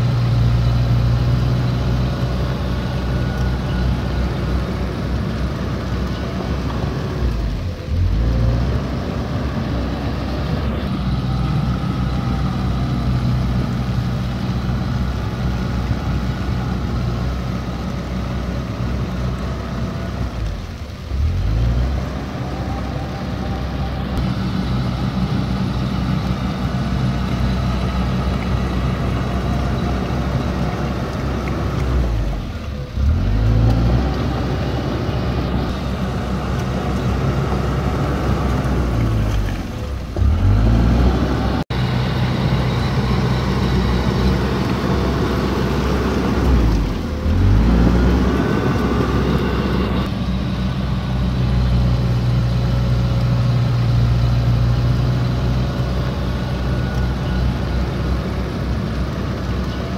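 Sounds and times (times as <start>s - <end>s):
bulldozer diesel engine running: 0.0s - 59.9s.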